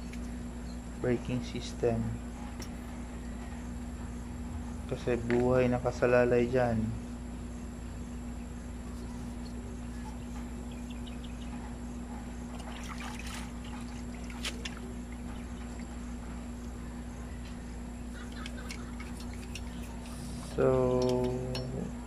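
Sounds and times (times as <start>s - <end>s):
low background hum: 0.0s - 22.0s.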